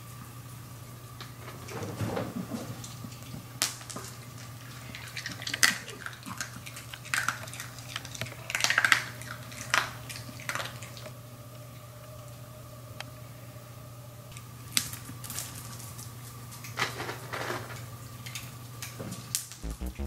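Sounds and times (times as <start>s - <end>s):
faint steady hum: 2.8s - 16.4s.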